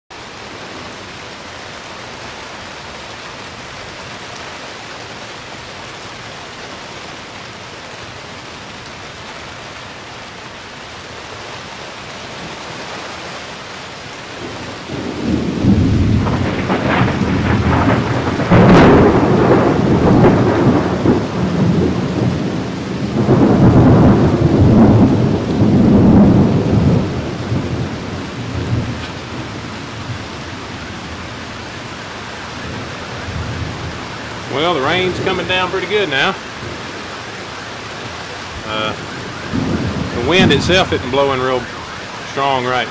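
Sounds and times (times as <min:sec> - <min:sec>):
steady rain hissing: 0:00.1 - 0:42.9
rolling thunder: 0:14.3 - 0:42.0.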